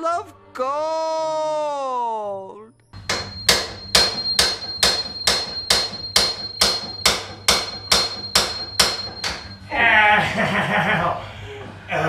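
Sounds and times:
hammer blows on steel: 3.0 - 9.7
thin metallic ring: 3.0 - 9.7.

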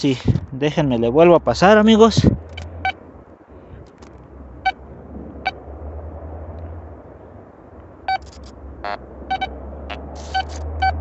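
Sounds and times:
metal detector short beeps: 8.1 - 9.5, 10.2 - 11.0.

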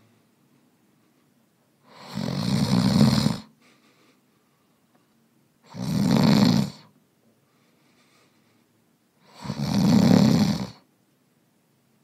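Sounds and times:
man snoring: 1.8 - 3.5, 5.6 - 6.9, 9.2 - 10.9.

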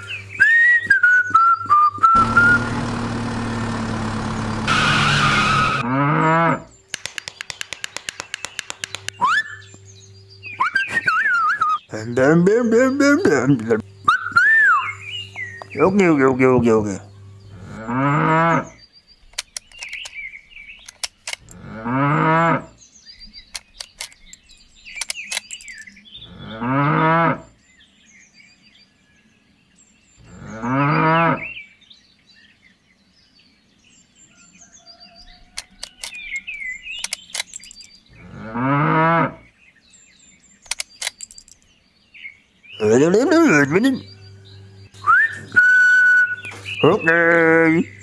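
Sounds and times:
cow mooing: 4.7 - 6.7, 17.5 - 18.8, 21.5 - 22.8, 26.2 - 27.5, 30.2 - 31.6, 38.2 - 39.5
faint bird chirps: 6.6 - 18.0, 27.6 - 38.5.

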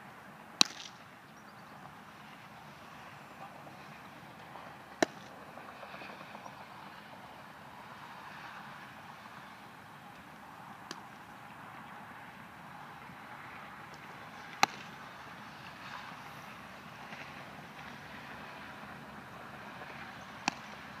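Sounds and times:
steady outdoor hiss: 0.0 - 21.0
baseball popping into leather glove: 0.6 - 1.0, 5.0 - 5.3, 13.9 - 14.9.

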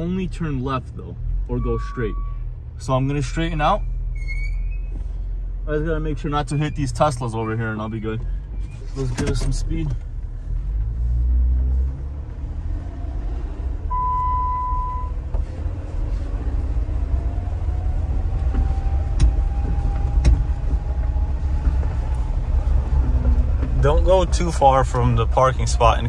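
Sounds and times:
car engine rumble from inside cabin: 0.0 - 26.0
short steady beep: 1.6 - 2.4, 13.9 - 15.2.

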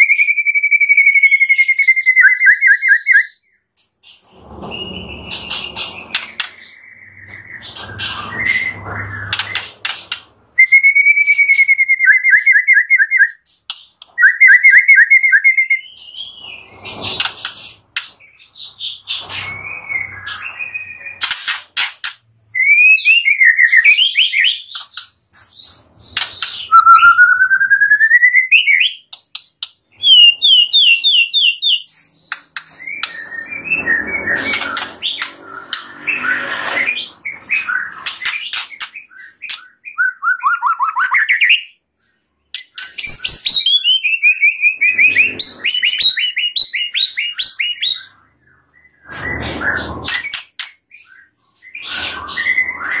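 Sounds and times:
bird singing whistled phrases: 0.0 - 3.5, 10.6 - 13.4, 14.2 - 16.6, 22.5 - 24.8, 26.6 - 29.1, 39.0 - 41.8
harsh rasping bird chatter: 3.7 - 11.7, 13.4 - 22.5, 29.0 - 39.9.

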